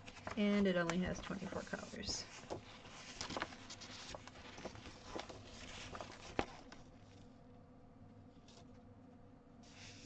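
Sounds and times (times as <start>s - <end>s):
paper pages rustling and crinkling: 0.0s - 7.4s, 8.4s - 8.8s, 9.7s - 10.0s.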